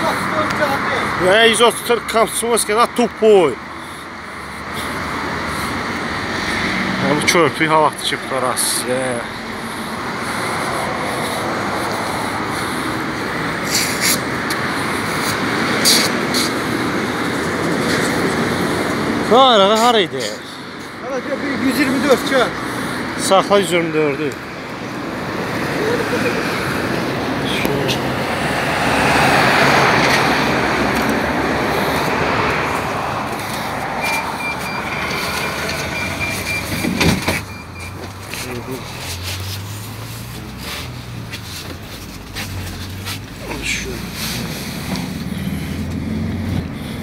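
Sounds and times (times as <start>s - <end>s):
street traffic: 0.0s - 47.0s
vehicle and road noise: 0.0s - 47.0s
minibus engine running: 24.5s - 47.0s
rapid electronic beeping: 35.8s - 36.8s.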